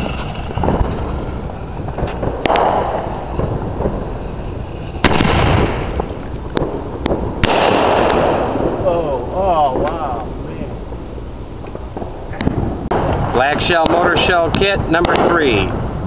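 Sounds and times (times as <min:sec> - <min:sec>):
firework mortar launch thump: 0:00.0 - 0:04.2, 0:04.8 - 0:09.1
firework bangs: 0:00.0 - 0:16.0.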